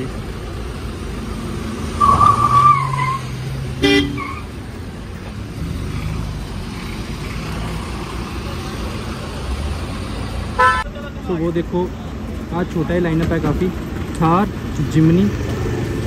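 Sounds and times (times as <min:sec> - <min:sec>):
road traffic: 0:00.0 - 0:16.0
vehicle horn: 0:03.8 - 0:04.4, 0:10.6 - 0:10.9.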